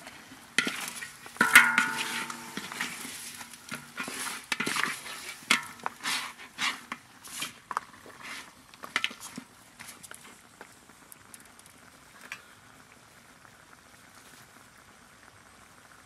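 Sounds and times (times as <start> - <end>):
spatula scraping in a wok: 0.0 - 10.1
meat sizzling: 0.0 - 12.3.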